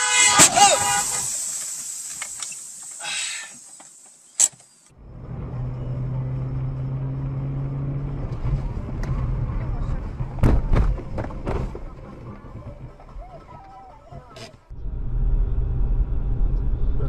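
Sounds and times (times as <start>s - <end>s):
car engine hum with road rumble: 0.0s - 17.0s
sharp click: 3.8s - 5.0s.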